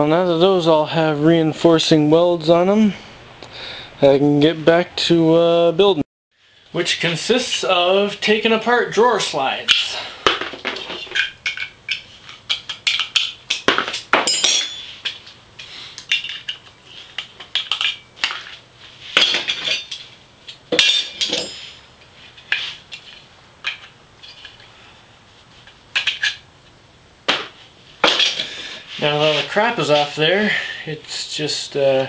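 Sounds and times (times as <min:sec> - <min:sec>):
metal parts knocking together: 0:09.7 - 0:15.4, 0:16.0 - 0:18.6, 0:19.2 - 0:21.8, 0:25.9 - 0:26.4, 0:27.3 - 0:28.5
metal strikes ringing: 0:20.8 - 0:21.9.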